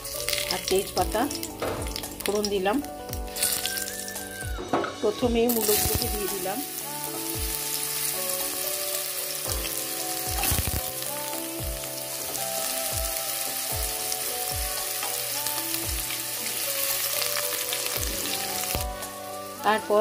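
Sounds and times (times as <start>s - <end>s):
radish sizzling in hot oil: 0.0s - 4.6s, 5.5s - 20.0s
soft background music: 0.0s - 20.0s.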